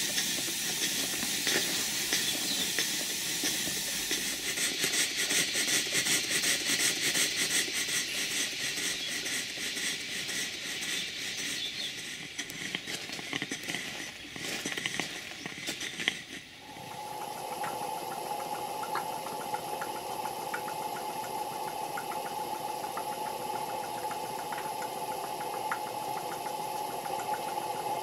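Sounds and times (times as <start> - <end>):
steam engine exhaust puffs: 0.0 - 28.0
steam hissing: 0.0 - 28.0.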